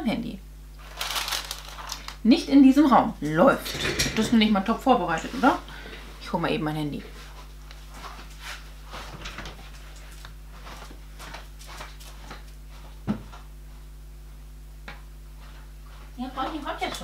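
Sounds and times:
electrical hum: 0.0s - 17.0s
footsteps on tiled floor: 7.2s - 14.4s.

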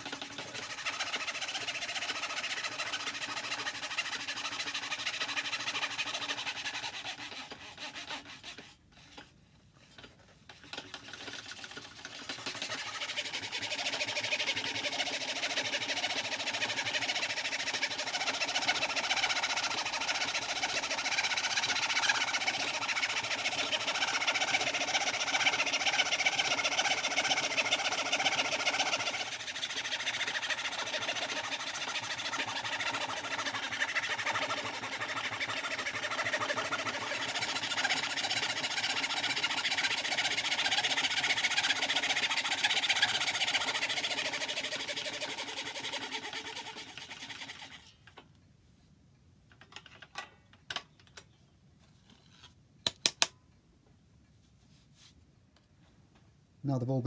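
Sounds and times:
fretsaw cutting plywood: 0.0s - 9.2s, 10.5s - 47.9s.

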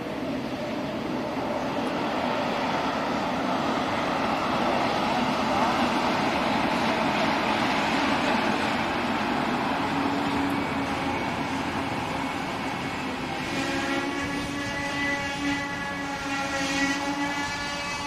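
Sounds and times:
train running rumble: 0.0s - 18.0s.

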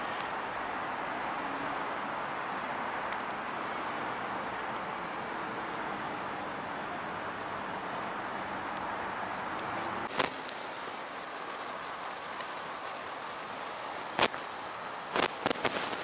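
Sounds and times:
outdoor hiss: 0.0s - 6.7s, 7.3s - 16.0s
fast-flowing floodwater rushing: 9.3s - 16.0s.

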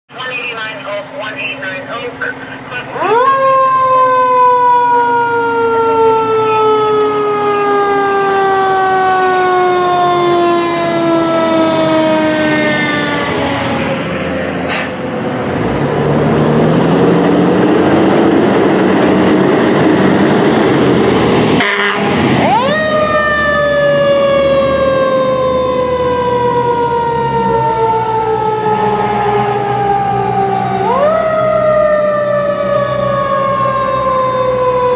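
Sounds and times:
fire truck siren wailing: 0.1s - 34.9s.

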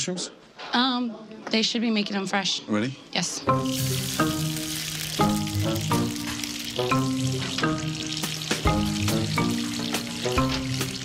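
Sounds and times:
background music of held notes: 3.4s - 11.0s
oil sizzling in deep fryer: 3.6s - 11.0s.

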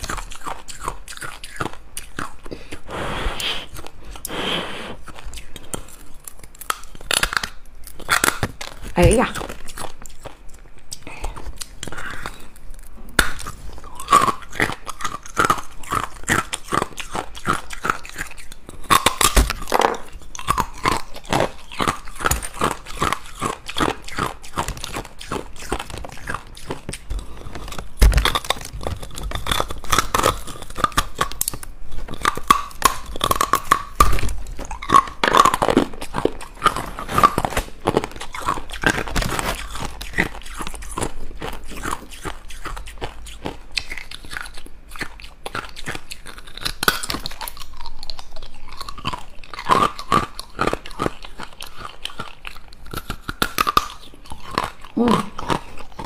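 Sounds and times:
ice cubes crunching: 13.2s - 43.4s.

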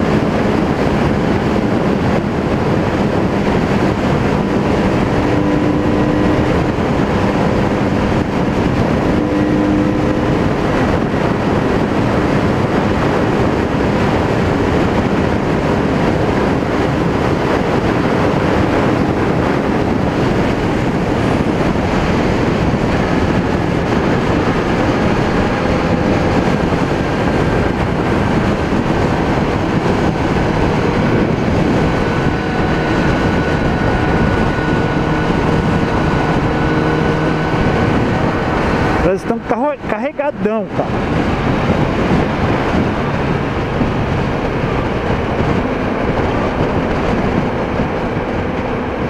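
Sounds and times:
motorcycle engine cruising: 0.0s - 49.0s
wind rushing over microphone: 0.0s - 49.0s.

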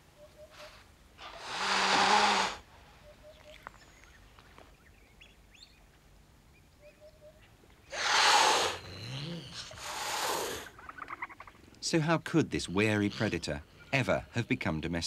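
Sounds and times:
wildcat hissing: 1.2s - 2.6s, 7.9s - 10.8s.

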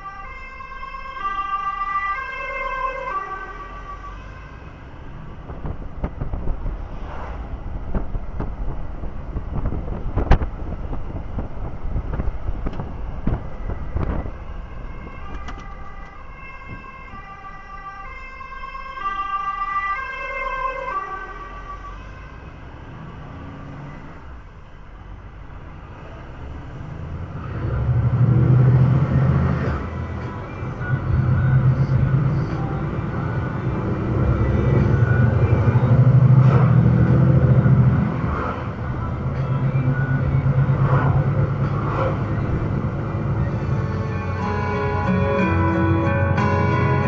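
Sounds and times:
ambulance siren: 0.0s - 5.0s, 13.7s - 22.7s
road noise: 0.0s - 47.0s
low engine rumble: 2.8s - 19.9s, 21.0s - 47.0s.

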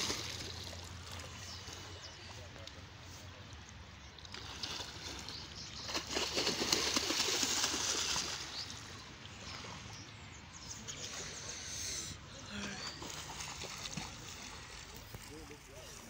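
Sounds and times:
swimmer splashing in pool: 5.8s - 8.7s.

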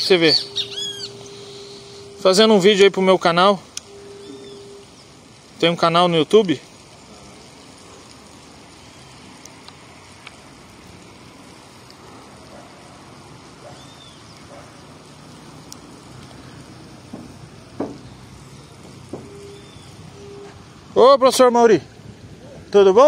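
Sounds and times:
short high chirps: 0.0s - 2.5s, 3.8s - 5.0s
outdoor background hiss: 0.0s - 23.0s
faint clicks: 15.6s - 16.5s.

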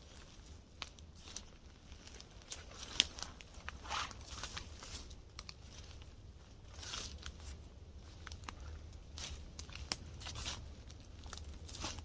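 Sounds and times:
footsteps through dry leaves: 0.0s - 12.0s
twigs snapping: 0.0s - 12.0s.

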